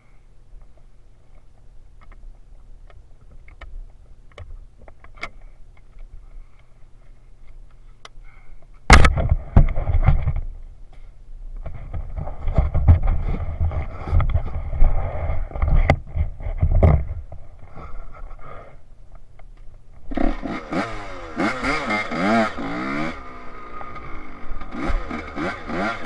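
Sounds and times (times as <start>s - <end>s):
dirt bike riding over sand: 20.0s - 26.0s.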